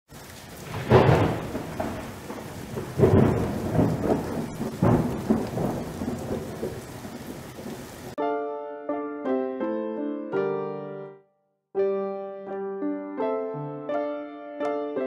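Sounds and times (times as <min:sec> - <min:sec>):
steady rain: 0:00.1 - 0:08.2
thunder rumbling: 0:00.2 - 0:08.2.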